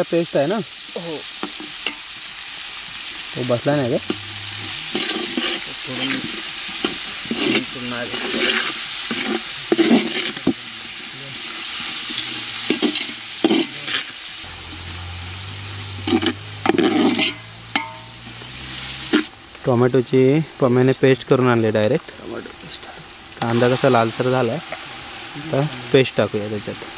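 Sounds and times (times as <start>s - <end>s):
onions sizzling in hot oil: 0.0s - 26.9s
scraping while stirring: 4.0s - 14.2s, 16.0s - 18.1s.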